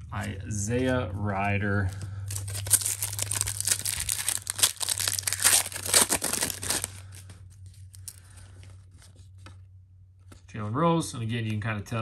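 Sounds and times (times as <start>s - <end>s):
foil wrapper crinkling: 1.9s - 9.2s.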